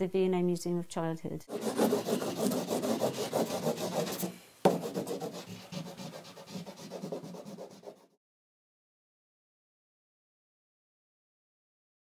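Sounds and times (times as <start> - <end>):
drawing tool rubbing on paper: 1.5 - 8.2.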